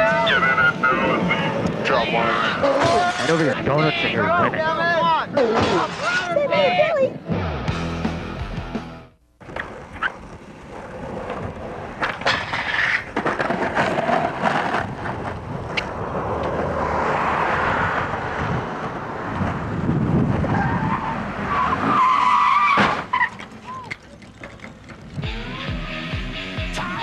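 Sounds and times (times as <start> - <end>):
skateboard clacks: 9.4 - 16.6
skateboard wheels rolling on asphalt: 9.4 - 26.1.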